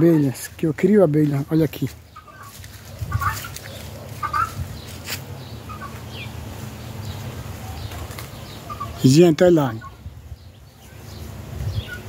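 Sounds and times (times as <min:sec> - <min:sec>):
low steady hum: 0:00.0 - 0:09.0
chickens clucking: 0:00.0 - 0:12.0.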